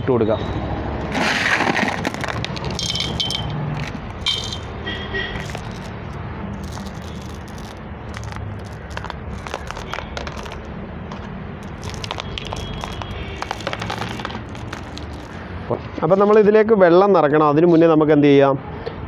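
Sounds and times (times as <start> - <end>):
pebbles clattering: 1.2 - 15.4.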